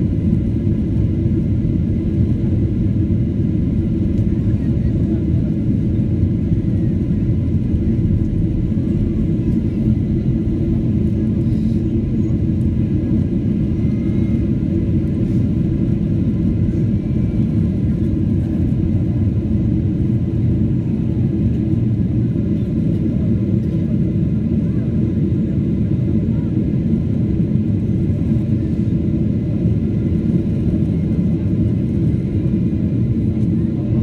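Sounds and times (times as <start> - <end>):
airliner cabin engine rumble: 0.0 - 34.0.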